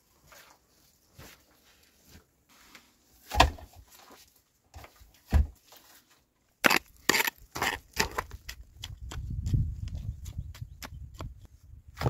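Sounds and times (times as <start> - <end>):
digging tool scraping stony soil: 5.6 - 8.6.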